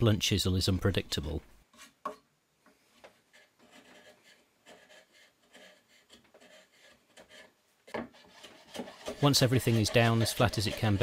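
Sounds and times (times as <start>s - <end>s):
chisel scraping wood: 3.0s - 11.0s.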